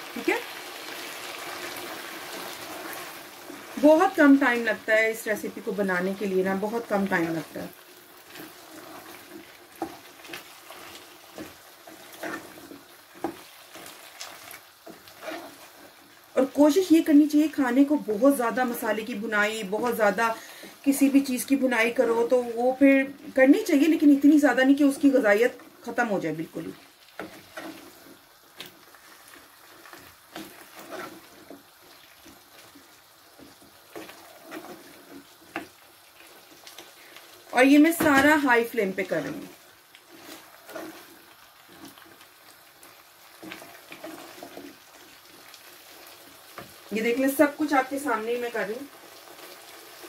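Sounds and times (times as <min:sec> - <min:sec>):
spatula scraping in gravy pan: 0:00.2 - 0:04.6, 0:06.3 - 0:17.6, 0:26.4 - 0:46.9, 0:47.5 - 0:50.0
spoon scraping and knocking pan: 0:08.2 - 0:16.0, 0:27.2 - 0:35.8, 0:40.1 - 0:42.1.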